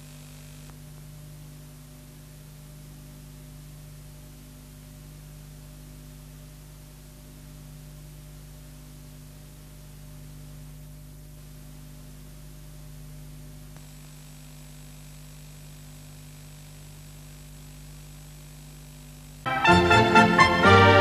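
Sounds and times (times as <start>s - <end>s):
electrical mains hum with hiss: 0.0s - 21.0s
click: 13.7s - 13.9s.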